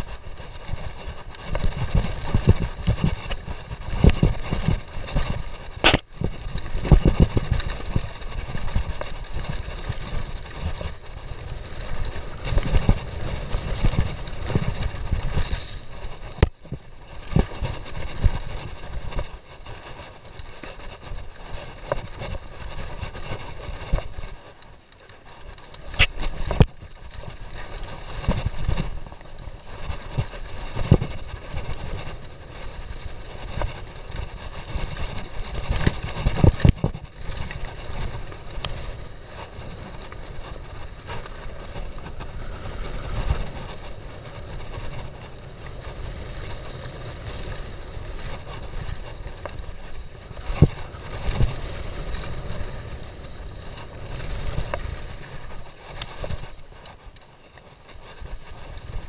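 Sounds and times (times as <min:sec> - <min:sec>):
bike frame and chain rattling: 0:00.0 - 0:59.0
bike tyres rumbling on dirt: 0:00.0 - 0:59.0.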